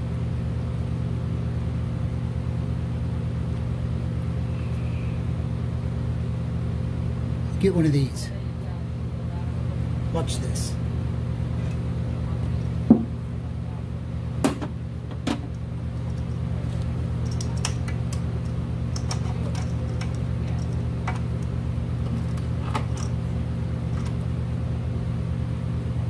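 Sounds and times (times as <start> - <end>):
steady low hum: 0.0 - 26.0
hoses and fittings clicking: 16.0 - 23.1.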